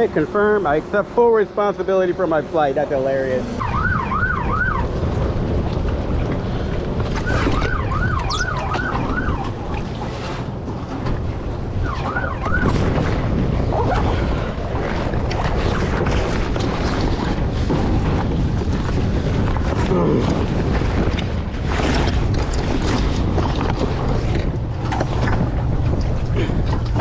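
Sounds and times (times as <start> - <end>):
wind buffeting microphone: 0.0 - 27.0
distant siren yelping: 3.4 - 5.0, 7.2 - 9.8, 11.8 - 12.8.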